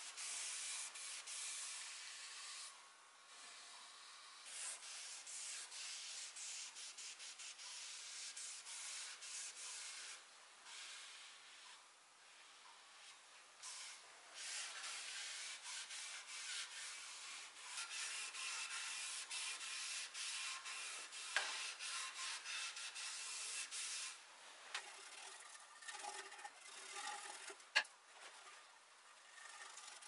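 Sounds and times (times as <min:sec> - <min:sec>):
cloth rubbing on wood: 0:14.5 - 0:24.2.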